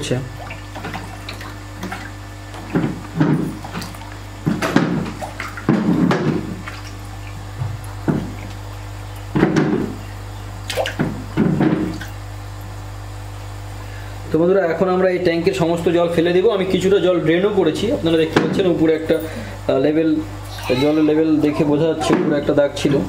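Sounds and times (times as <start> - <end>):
fish splashing at water surface: 0.0 - 14.2
aeration system humming: 0.0 - 23.0.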